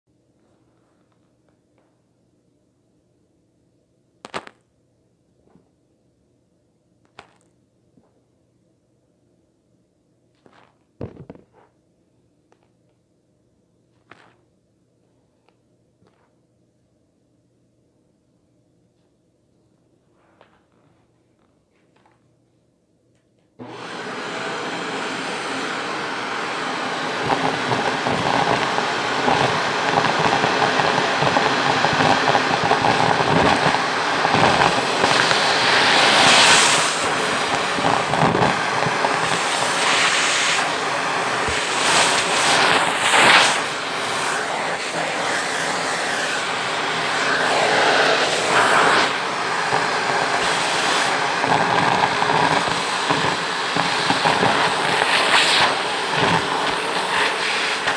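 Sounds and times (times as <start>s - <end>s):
vacuum cleaner running: 23.6s - 57.9s.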